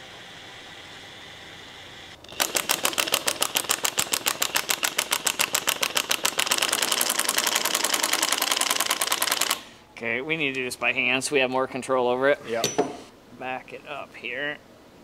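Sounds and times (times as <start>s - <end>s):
impact wrench hammering: 2.4s - 9.6s.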